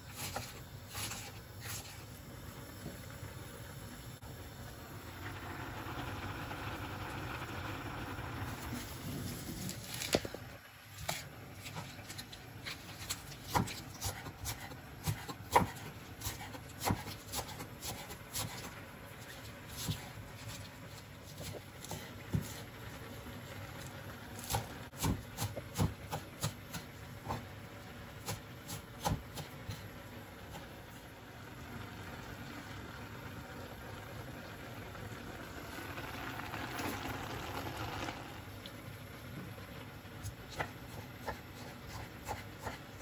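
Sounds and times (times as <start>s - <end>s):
pot boiling and bubbling: 0.0s - 43.0s
knife chopping on wooden board: 13.4s - 18.7s, 24.4s - 27.5s, 28.2s - 29.9s, 40.5s - 43.0s.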